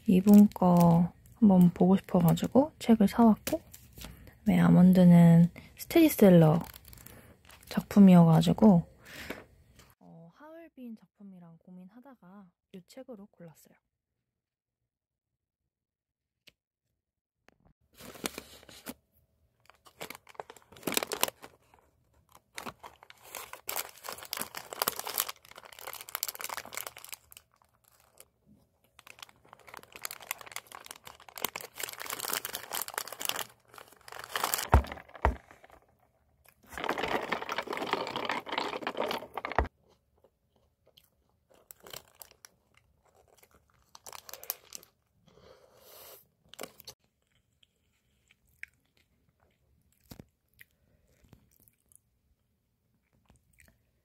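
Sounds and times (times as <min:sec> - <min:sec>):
paper wrapper crinkling: 0:00.1 - 0:02.5, 0:06.3 - 0:07.8, 0:17.9 - 0:19.0, 0:19.6 - 0:36.0, 0:36.6 - 0:39.7, 0:41.5 - 0:45.0.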